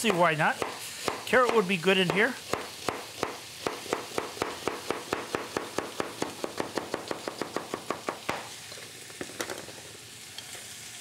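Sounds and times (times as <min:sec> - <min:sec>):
knife chopping on cutting board: 0:00.0 - 0:08.5.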